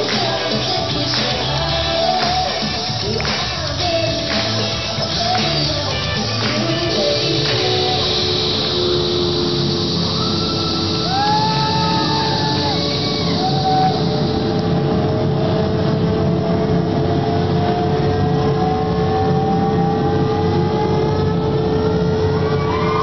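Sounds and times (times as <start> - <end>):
spacecraft sound effect: 6.8 - 23.0.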